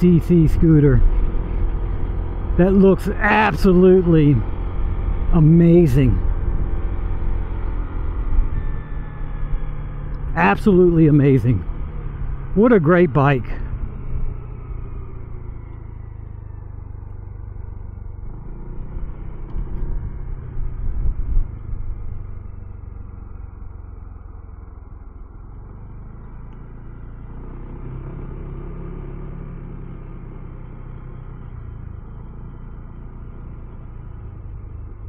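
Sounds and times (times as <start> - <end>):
scooter engine running: 0.0 - 35.0.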